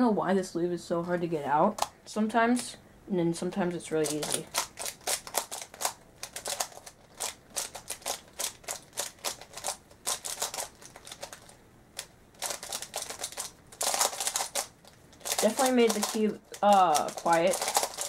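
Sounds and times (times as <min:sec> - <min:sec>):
speed cube clicking turns: 0:04.0 - 0:18.0.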